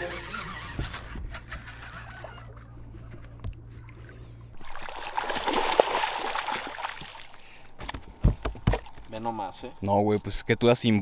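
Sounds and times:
water splashing: 0:04.6 - 0:09.2.

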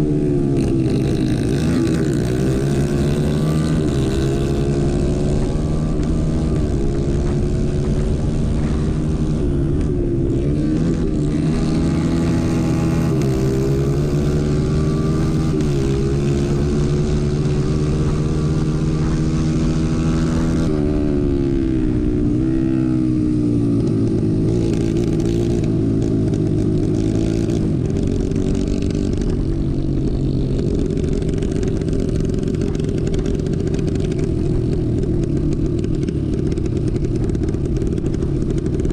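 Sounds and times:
kart engine at racing speed: 0:00.0 - 0:38.9.

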